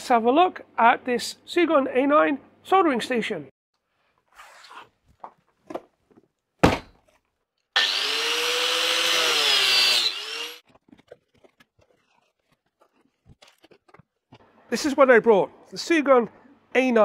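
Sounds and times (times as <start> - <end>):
angle grinder cutting: 7.8 - 10.6
cardboard handling: 10.7 - 14.4.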